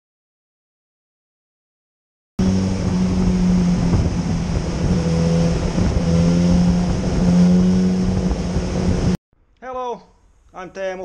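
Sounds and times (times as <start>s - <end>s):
motorcycle engine running: 2.4s - 9.2s.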